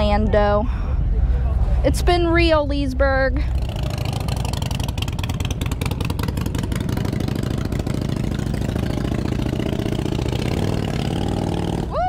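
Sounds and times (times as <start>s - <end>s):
motorcycle engines idling: 3.4s - 11.9s.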